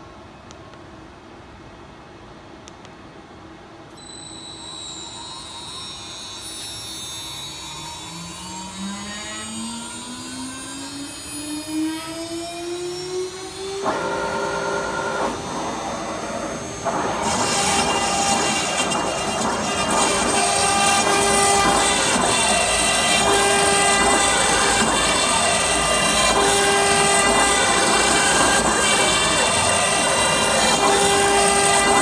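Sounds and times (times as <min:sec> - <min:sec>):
mechanical whirring: 0:04.0 - 0:32.0
spindle motor whine rising: 0:04.0 - 0:32.0.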